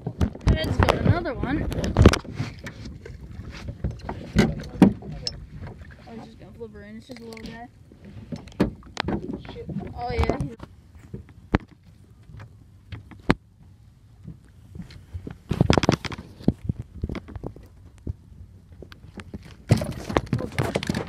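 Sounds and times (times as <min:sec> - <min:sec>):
knocking and rattling in metal boat: 0:00.0 - 0:06.5, 0:07.5 - 0:11.7, 0:19.1 - 0:21.0.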